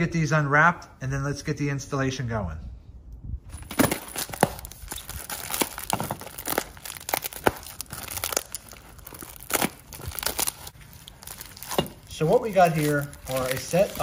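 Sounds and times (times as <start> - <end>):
bubble wrap crinkling and tearing: 3.9 - 14.0.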